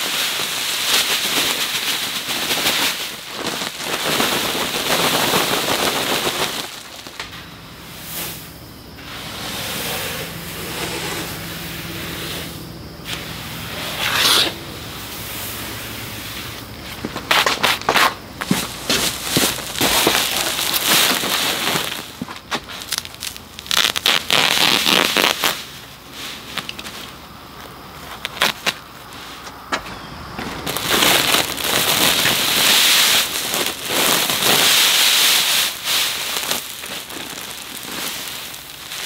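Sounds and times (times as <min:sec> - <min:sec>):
grass seed pouring into hopper: 0:18.5 - 0:25.5, 0:30.7 - 0:39.0.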